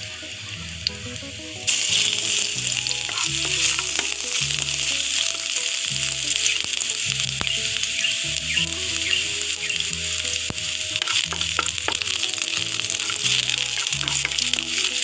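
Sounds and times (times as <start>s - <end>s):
loud sizzle in hot oil: 0.0s - 15.0s
seeds frying: 0.0s - 15.0s
wooden spatula clicking in pan: 10.5s - 15.0s.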